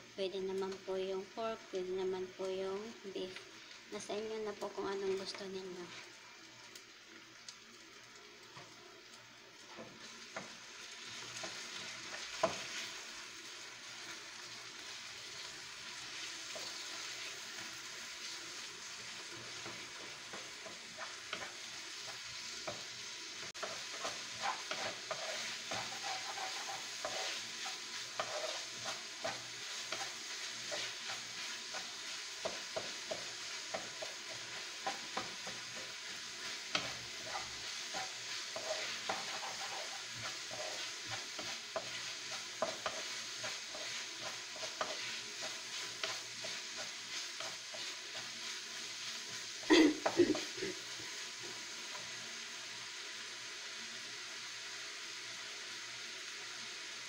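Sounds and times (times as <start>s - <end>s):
meat sizzling in a wok: 0.0s - 57.0s
spatula scraping and tapping pan: 11.1s - 12.9s, 19.4s - 49.3s.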